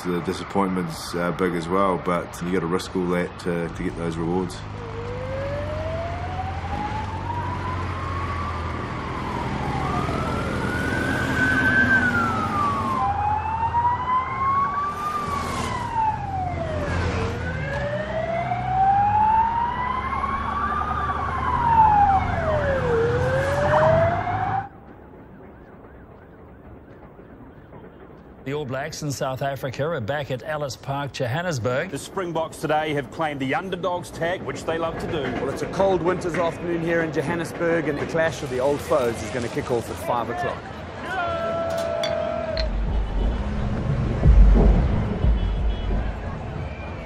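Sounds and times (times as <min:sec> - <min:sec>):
motorcycle and traffic engines rumbling: 0:00.0 - 0:24.9, 0:31.7 - 0:47.0
police siren wailing: 0:04.7 - 0:28.4
second siren: 0:04.8 - 0:28.4.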